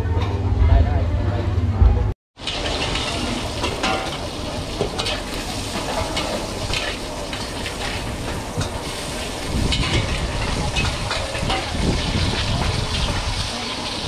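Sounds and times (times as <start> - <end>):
low rumble: 0.0 - 2.2
ladle scraping and clinking on wok: 2.4 - 14.0
prawns sizzling in a wok: 2.4 - 14.0.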